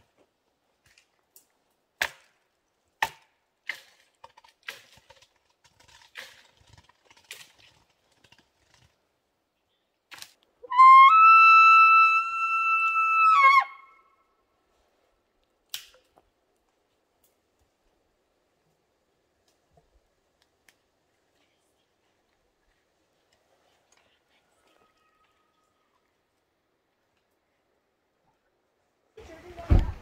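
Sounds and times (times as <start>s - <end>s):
elk bugling whistle: 10.6s - 14.1s
sharp cracks and clicks: 15.7s - 16.2s.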